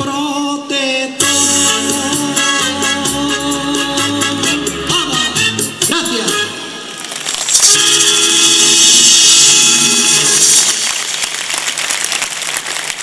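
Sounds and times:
audience applause: 10.1s - 13.0s
maracas shaken in a roll: 10.4s - 13.0s.

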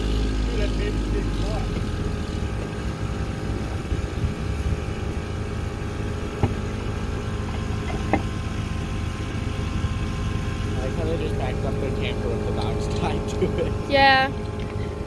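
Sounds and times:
engine idling: 0.0s - 15.0s
sharp knocks: 6.3s - 6.8s.

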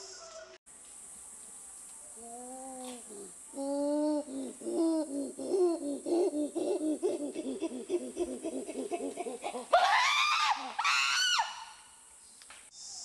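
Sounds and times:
high-pitched voice laughing: 7.2s - 9.8s
loud screams: 9.7s - 11.8s.

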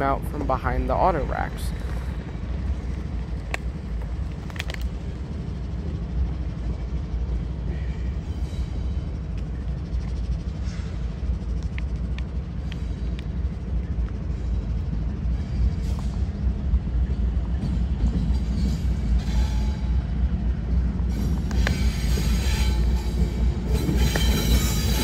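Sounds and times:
diesel locomotives rumbling: 0.0s - 25.0s.

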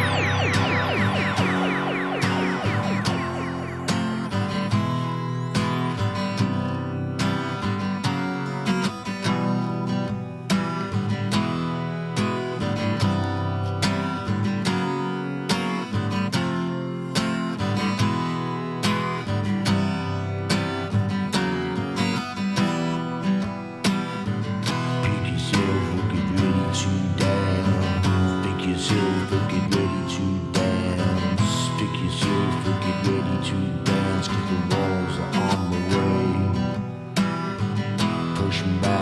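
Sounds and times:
rock music: 0.0s - 6.1s.

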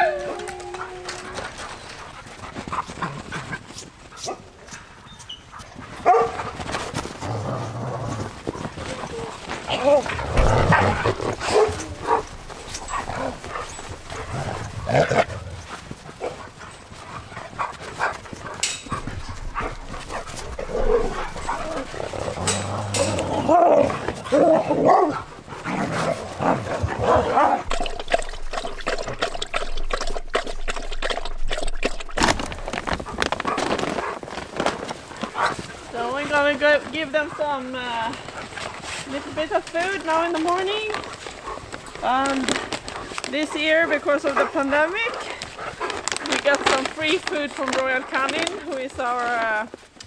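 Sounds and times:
dogs barking: 5.9s - 6.6s, 10.4s - 15.3s, 22.5s - 25.5s.

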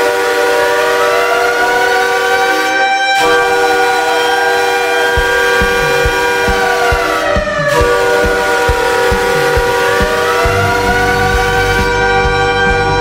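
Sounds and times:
goal horn blasts: 0.0s - 13.0s
low regular thumps: 5.1s - 13.0s.

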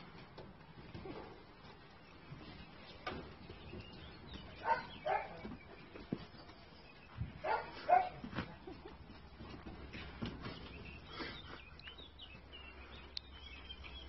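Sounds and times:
dog barking: 4.6s - 5.4s, 7.4s - 8.2s.

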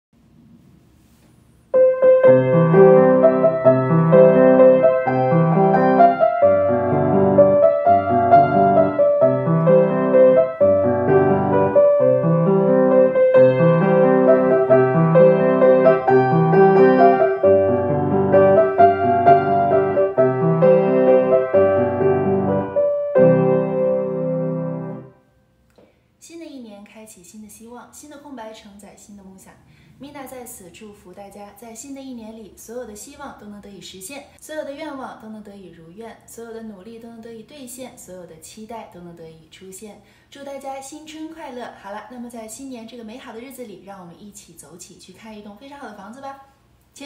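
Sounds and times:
grand piano playing: 1.8s - 25.2s.

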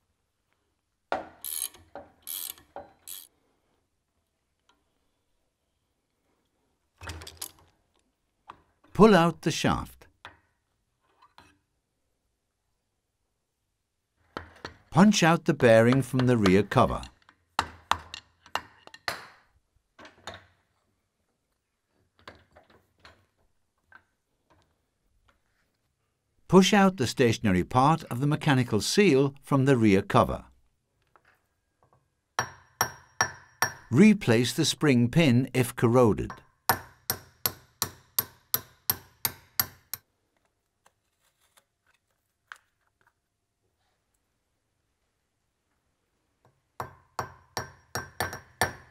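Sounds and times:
hammer striking metal: 32.4s - 33.9s.

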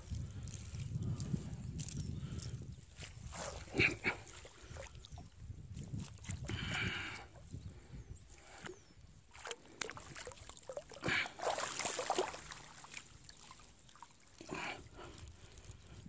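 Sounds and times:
water sloshing and splashing: 3.0s - 7.5s, 8.3s - 16.0s.

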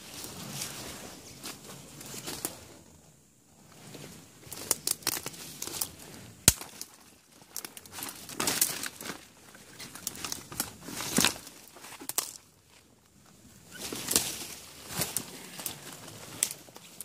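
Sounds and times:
sharp crack of branch: 4.5s - 7.0s, 13.9s - 15.3s.

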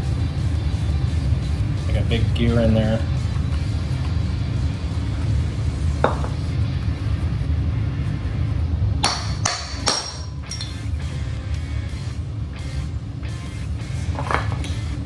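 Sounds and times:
hammer clanking on metal: 9.0s - 10.6s.

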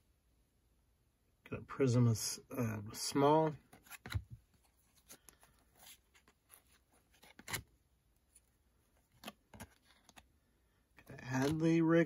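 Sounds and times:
cards sliding off a stack: 3.7s - 7.7s.

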